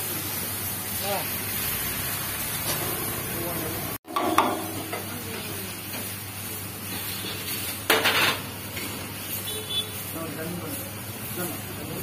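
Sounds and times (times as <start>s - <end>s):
metal ladle scraping griddle: 2.0s - 3.5s, 4.1s - 6.1s, 6.8s - 9.0s
sharp knock: 4.1s - 5.1s.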